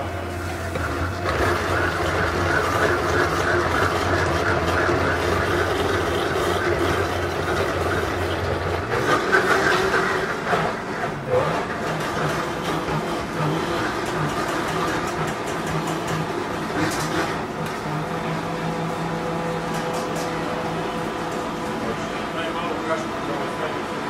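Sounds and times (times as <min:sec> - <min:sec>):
kitchen background noise: 0:00.0 - 0:22.6
blender motor drone: 0:00.0 - 0:24.0.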